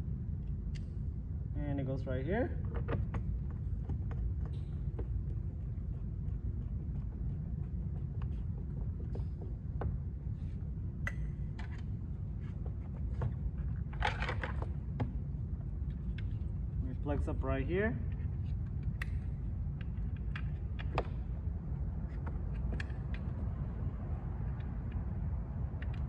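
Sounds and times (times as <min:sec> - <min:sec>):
low background hum: 0:00.0 - 0:26.0
screwdriver clicks and taps: 0:18.8 - 0:21.2.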